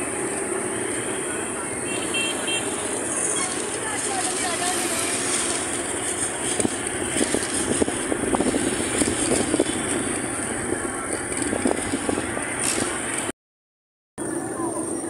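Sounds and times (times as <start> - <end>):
vehicle running noise: 0.0 - 13.3, 14.2 - 15.0
wind on microphone: 6.2 - 13.0.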